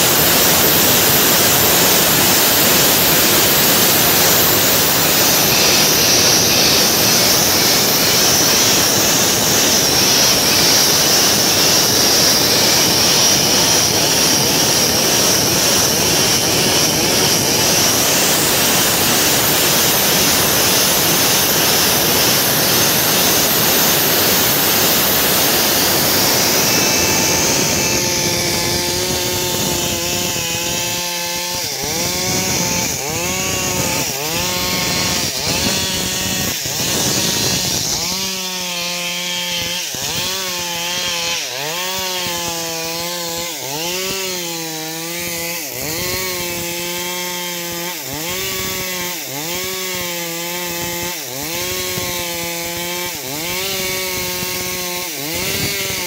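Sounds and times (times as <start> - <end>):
chainsaw cutting into log: 0.0 - 56.0.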